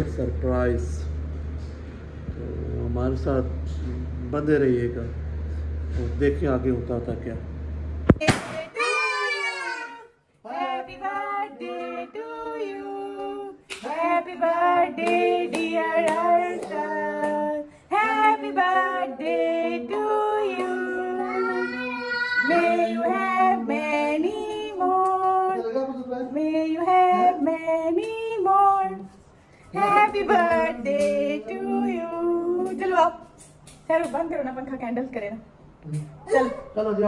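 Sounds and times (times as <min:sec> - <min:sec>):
people singing together off-key: 0:10.4 - 0:25.6, 0:26.4 - 0:29.1, 0:29.7 - 0:32.9.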